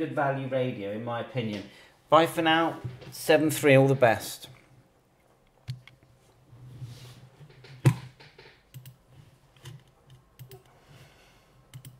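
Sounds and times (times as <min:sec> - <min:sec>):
mouse and keyboard clicking: 0:07.5 - 0:09.0.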